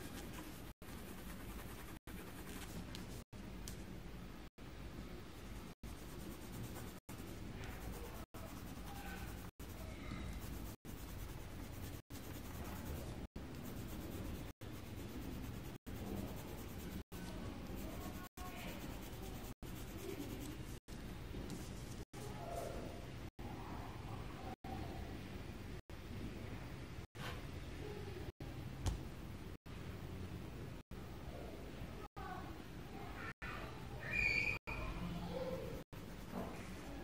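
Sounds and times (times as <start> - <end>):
pencil scratching on paper: 0.0 - 3.3, 5.6 - 20.9.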